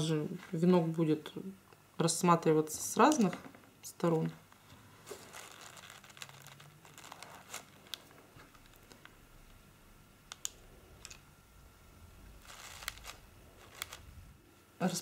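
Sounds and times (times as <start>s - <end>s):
faint rustling: 4.5s - 9.2s.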